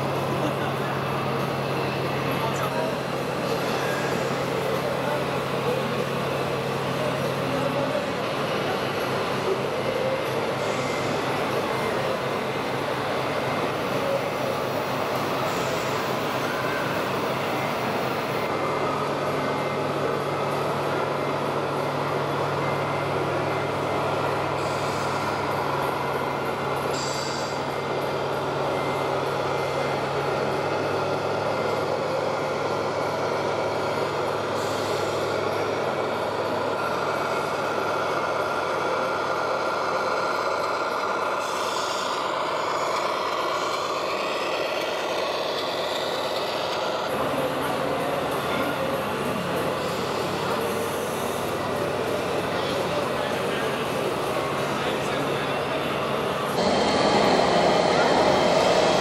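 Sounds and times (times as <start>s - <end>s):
diesel truck engine running: 56.1s - 59.0s.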